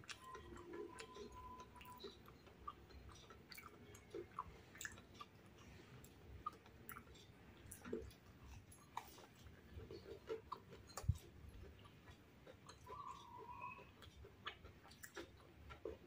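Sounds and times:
chewing crispy food: 0:00.0 - 0:16.0
wet mouth clicks: 0:09.9 - 0:16.0.

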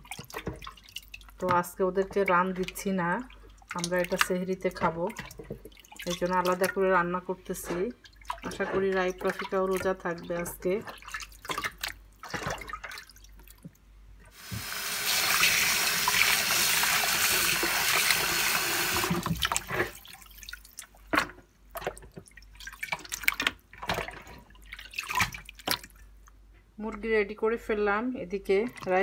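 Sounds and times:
splashes and drips: 0:00.0 - 0:26.4, 0:28.5 - 0:29.0
kitchen tap running: 0:14.3 - 0:20.0.

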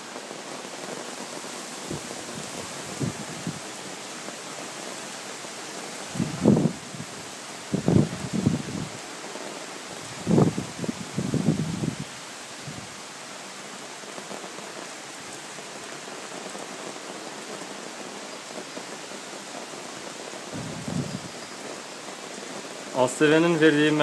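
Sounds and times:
heavy rain pouring: 0:00.0 - 0:24.0
low thunder rumble: 0:20.5 - 0:21.3.

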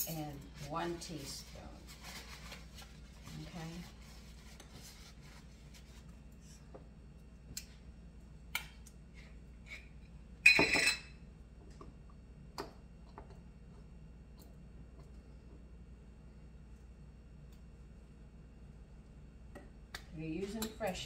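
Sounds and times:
metal spoons clattering: 0:10.5 - 0:11.1.

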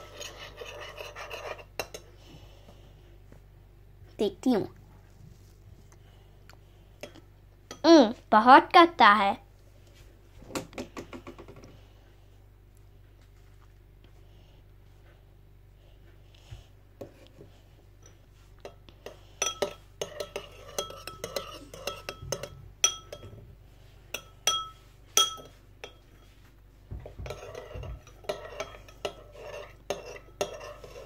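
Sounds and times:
spoon scraping bowl: 0:00.0 - 0:02.1, 0:18.0 - 0:23.4, 0:27.0 - 0:31.0
metal spoon clinking glass bowl: 0:19.4 - 0:23.3, 0:24.1 - 0:26.2.

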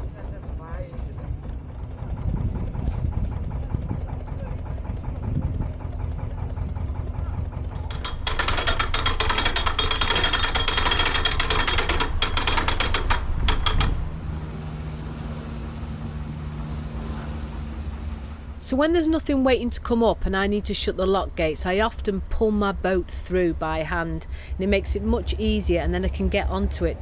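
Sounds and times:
diesel engine idling: 0:00.0 - 0:08.6, 0:14.0 - 0:27.0.

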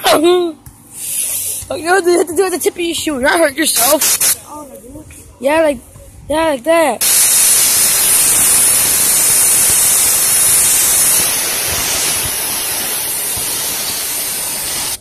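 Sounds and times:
compressed air blow gun hissing: 0:00.9 - 0:01.6, 0:03.8 - 0:04.4, 0:07.0 - 0:15.0.

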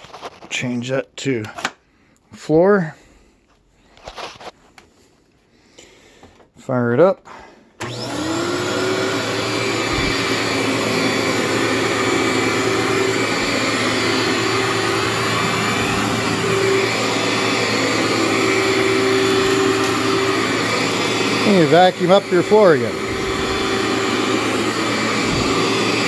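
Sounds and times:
vacuum cleaner whirring: 0:07.8 - 0:26.0.

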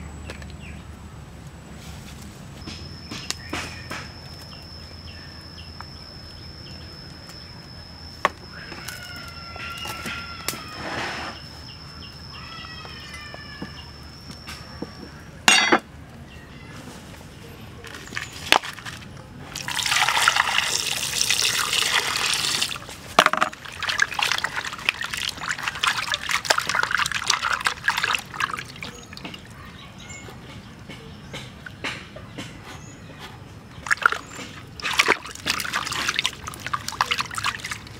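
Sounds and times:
water splashing and sloshing: 0:17.9 - 0:29.8, 0:33.7 - 0:37.9
water pouring into metal pan: 0:19.6 - 0:22.8, 0:23.5 - 0:29.2, 0:33.9 - 0:37.9.

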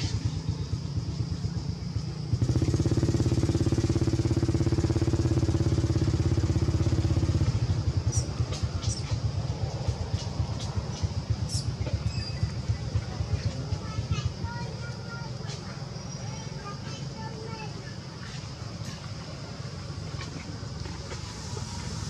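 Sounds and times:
motor engine pulsing: 0:00.0 - 0:14.4.

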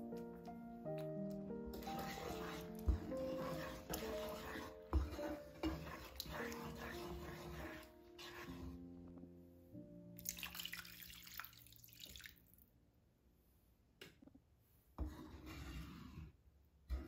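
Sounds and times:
wooden spoon stirring sauce: 0:01.7 - 0:08.8
liquid pouring into pan: 0:10.2 - 0:12.6.

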